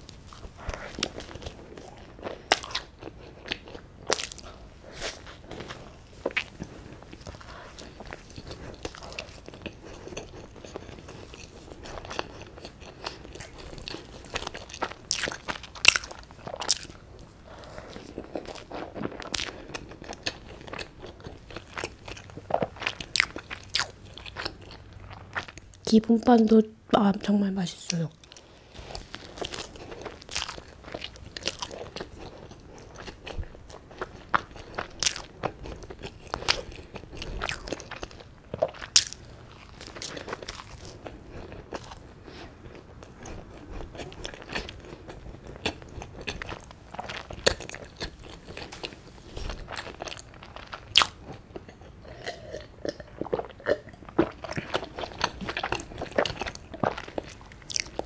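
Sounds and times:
bread being bitten and chewed: 0.0s - 25.8s, 28.2s - 58.0s.

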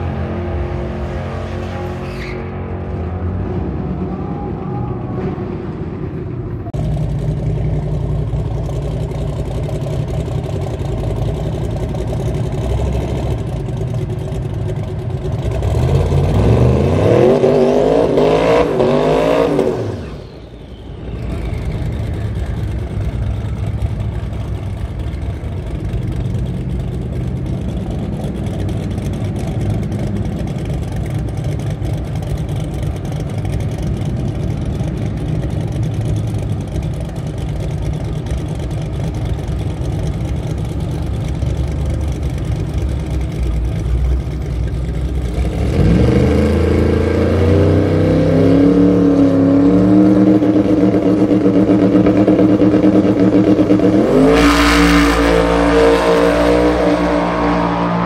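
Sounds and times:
drag racing engines rumbling: 0.0s - 58.0s
car accelerating through gears: 45.4s - 58.0s.

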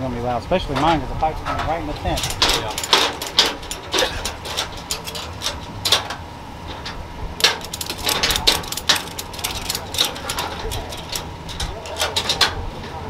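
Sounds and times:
ratchet strap clicking: 7.4s - 12.4s.

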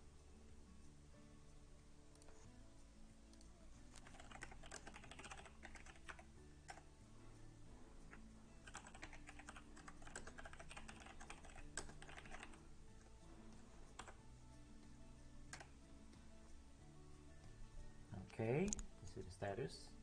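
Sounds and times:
faint low hum: 0.0s - 20.0s
typing on computer keyboard: 3.9s - 6.9s, 8.6s - 12.6s, 13.9s - 14.2s, 15.5s - 15.7s.

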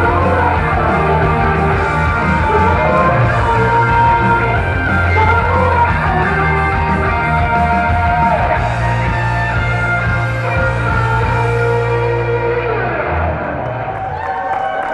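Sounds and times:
upbeat pop song with electric guitar: 0.0s - 13.9s.

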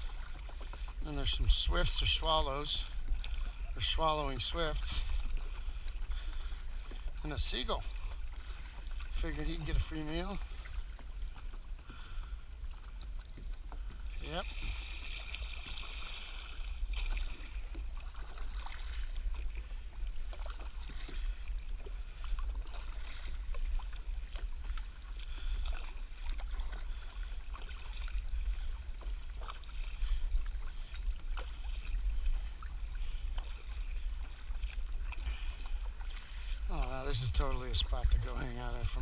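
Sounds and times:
paddle splashing in water: 0.0s - 39.0s
steady low rumble: 16.2s - 39.0s.

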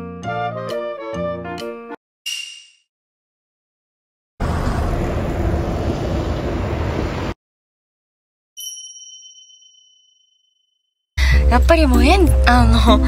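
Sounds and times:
bright ding sound effect: 8.6s - 10.4s.

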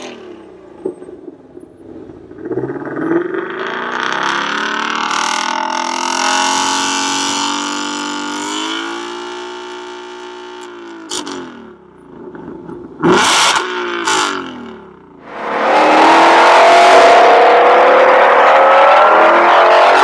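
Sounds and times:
car engine revving: 13.0s - 20.0s.

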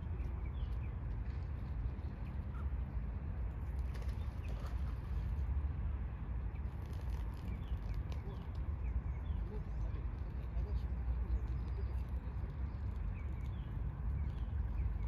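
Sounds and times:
small birds chirping: 0.0s - 2.8s, 6.5s - 15.0s
steady low rumble: 0.0s - 15.0s.

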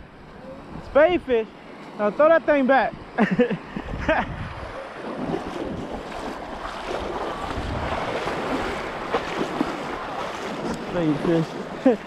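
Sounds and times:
surf washing over beach: 0.0s - 12.0s
wind buffeting microphone: 2.9s - 12.0s.

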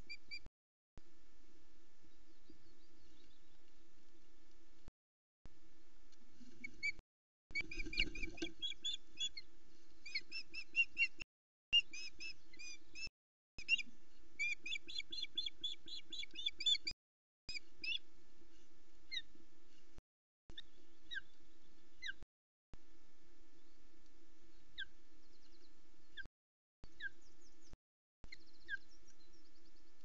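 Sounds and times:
ospreys chirping calls: 7.6s - 9.3s.

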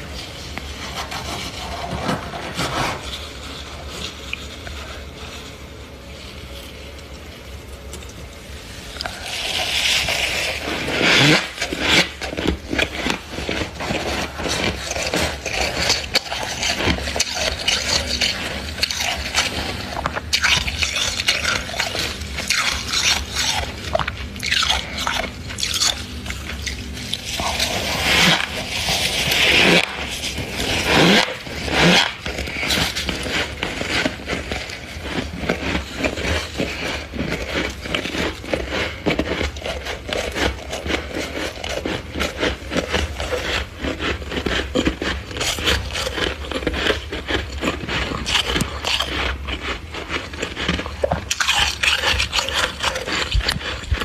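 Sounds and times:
hand crunching frost: 8.8s - 54.0s.

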